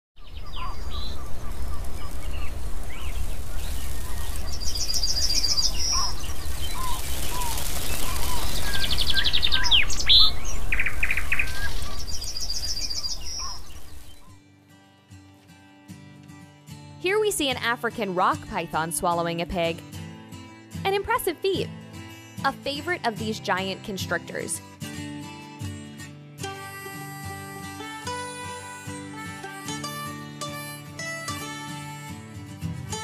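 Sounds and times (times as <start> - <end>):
birds trilling and chirping: 0.2 - 14.3.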